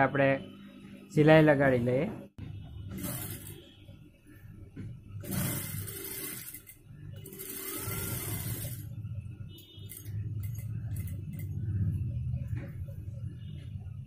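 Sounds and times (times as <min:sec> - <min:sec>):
sewing machine stitching: 0:02.9 - 0:03.6, 0:05.2 - 0:09.0.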